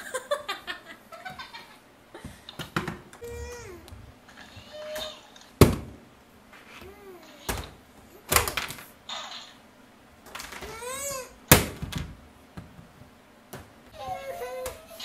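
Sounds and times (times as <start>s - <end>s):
baby babbling and squealing: 3.2s - 5.4s, 14.0s - 15.0s.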